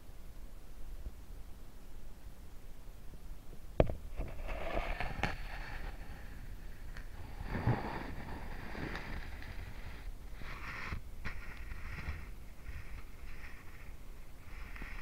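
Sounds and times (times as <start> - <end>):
hissing crackle: 4.4 - 15.0.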